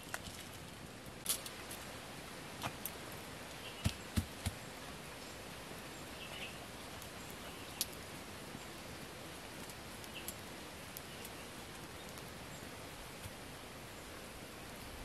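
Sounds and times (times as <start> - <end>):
steady outdoor hiss: 0.0 - 15.0
faint bird chirps: 5.2 - 7.9.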